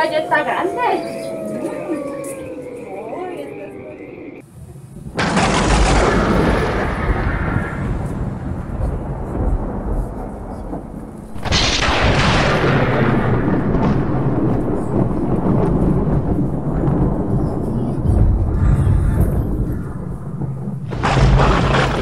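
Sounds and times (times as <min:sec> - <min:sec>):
low thunder rumbling: 0:00.0 - 0:22.0
loud thunderclap: 0:05.0 - 0:22.0.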